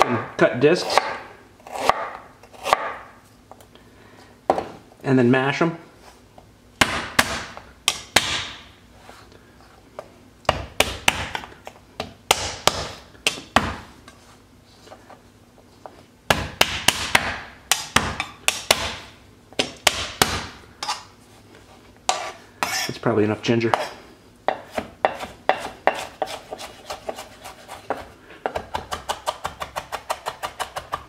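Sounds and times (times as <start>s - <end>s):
knife chopping on wooden board: 0.8s - 3.1s, 6.8s - 8.6s, 10.5s - 13.9s, 16.3s - 21.0s, 24.5s - 31.0s.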